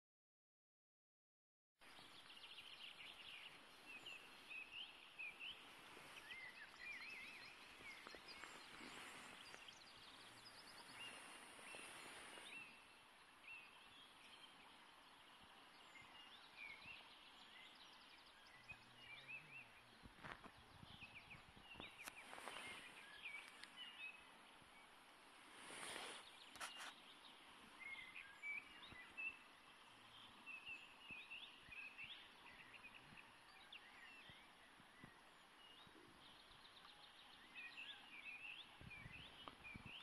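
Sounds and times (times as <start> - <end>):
flowing river water: 1.8 - 40.0
songbirds chirping: 1.8 - 40.0.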